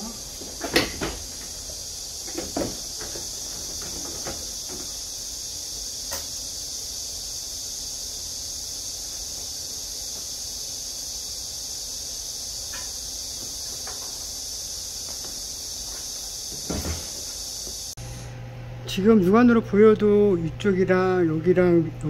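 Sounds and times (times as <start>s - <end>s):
high-pitched hiss: 0.0s - 18.2s.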